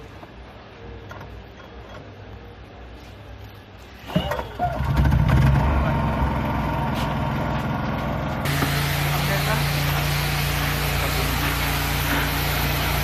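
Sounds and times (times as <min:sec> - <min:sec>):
machine motor running loudly: 0:04.8 - 0:13.0.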